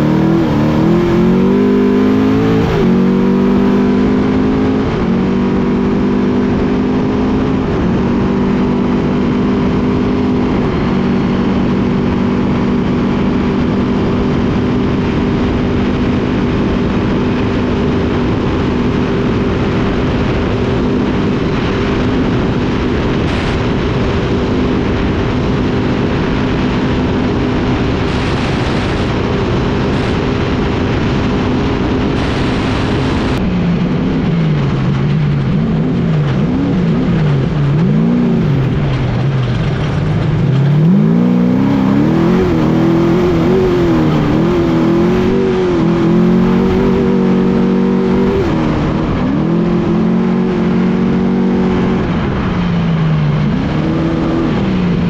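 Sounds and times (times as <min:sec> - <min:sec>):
truck engine at high revs: 0:00.0 - 0:55.0
wind and road noise: 0:00.0 - 0:55.0.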